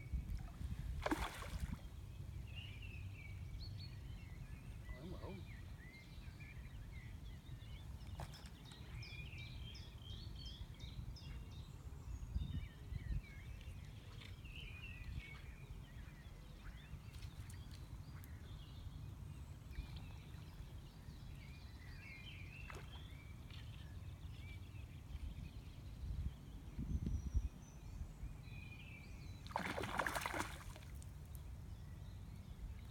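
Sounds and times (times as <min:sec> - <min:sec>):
wind rumble on microphone: 0:00.0 - 0:05.4, 0:10.4 - 0:17.4, 0:24.2 - 0:28.8
small birds singing: 0:01.0 - 0:32.9.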